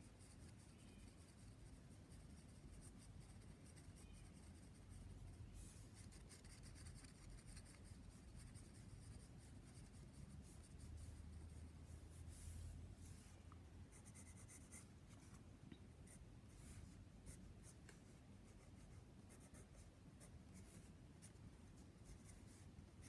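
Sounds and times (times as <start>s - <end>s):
pencil scratching on paper: 0.2s - 5.0s, 5.8s - 12.0s, 13.9s - 14.9s.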